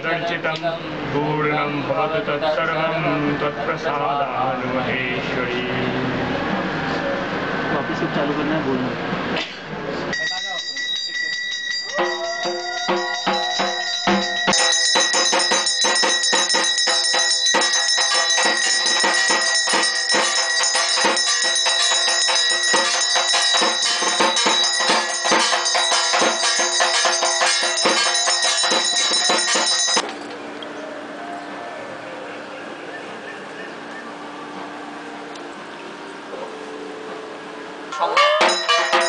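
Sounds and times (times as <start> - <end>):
hand bell ringing rapidly: 10.1 - 30.0, 38.3 - 39.0.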